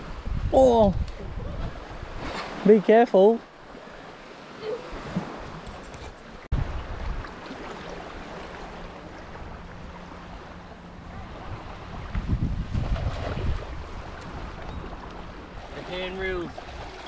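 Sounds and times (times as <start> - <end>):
wind buffeting microphone: 0.0 - 2.6, 4.8 - 7.8, 9.2 - 17.0
small waves lapping on shore: 0.0 - 17.0.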